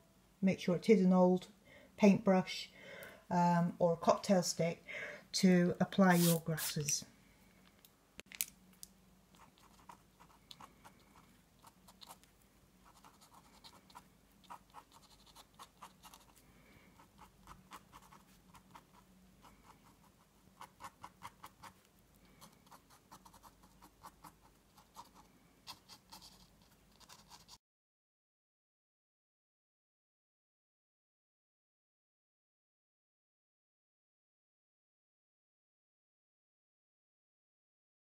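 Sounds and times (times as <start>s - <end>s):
pen nib scratching paper: 6.0s - 7.0s, 9.3s - 27.6s.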